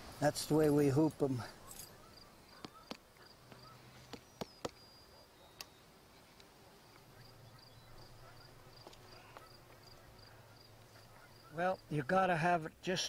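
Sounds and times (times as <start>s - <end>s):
insects chirping: 6.8s - 11.9s.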